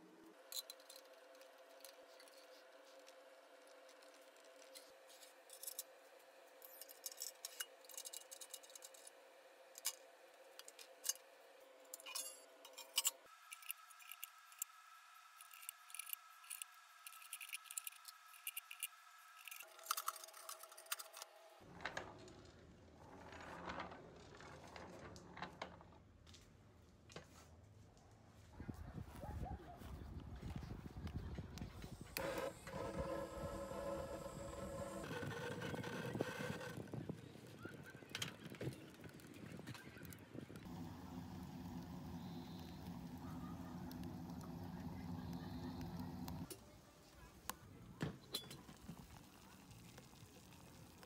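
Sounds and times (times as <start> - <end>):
metal parts clicking and clinking: 0.5 - 2.6, 6.6 - 9.2, 11.9 - 14.7, 15.4 - 21.3
faint steady hum: 40.6 - 47.9.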